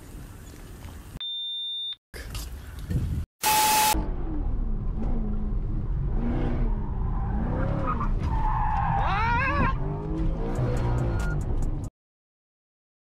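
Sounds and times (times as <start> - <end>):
car tyres squealing: 6.5 - 11.4.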